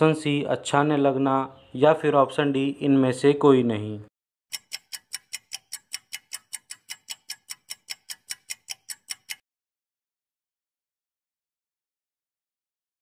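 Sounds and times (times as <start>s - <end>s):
clock ticking: 4.5s - 9.4s.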